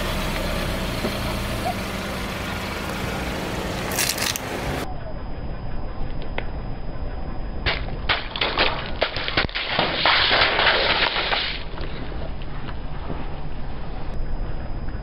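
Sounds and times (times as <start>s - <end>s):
plastic tubes bursting: 7.7s - 12.0s.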